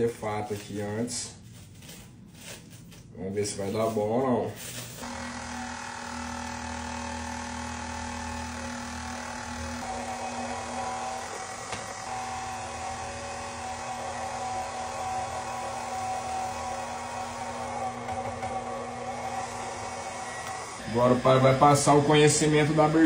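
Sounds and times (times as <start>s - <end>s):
stand mixer motor whining: 5.0s - 23.0s.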